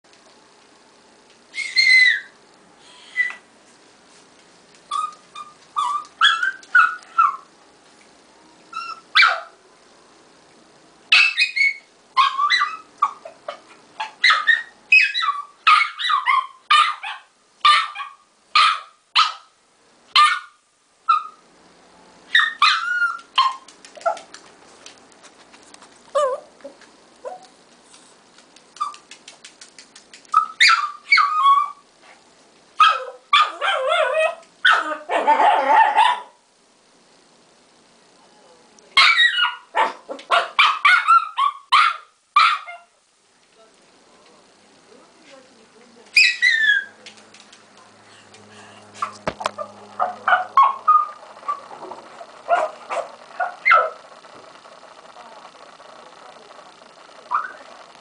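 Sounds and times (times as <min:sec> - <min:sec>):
dog whining and yipping: 0:01.5 - 0:02.4, 0:04.9 - 0:07.4, 0:14.0 - 0:16.9, 0:26.2 - 0:26.5, 0:30.3 - 0:31.8, 0:46.2 - 0:47.0, 0:50.0 - 0:51.6.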